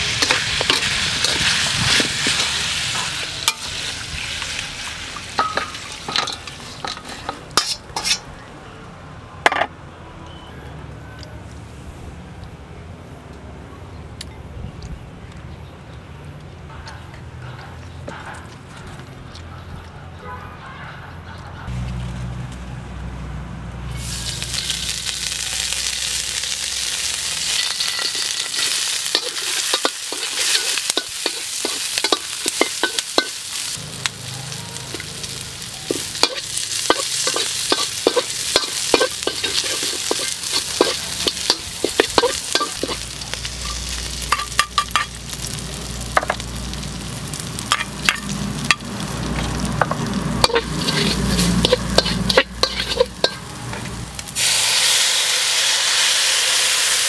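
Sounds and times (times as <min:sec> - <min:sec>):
food sizzling in hot oil: 0:00.0 - 0:08.2, 0:23.9 - 0:57.0
metal spatula scraping a wok: 0:00.0 - 0:08.3, 0:24.0 - 0:33.8, 0:34.8 - 0:45.4, 0:47.6 - 0:54.5.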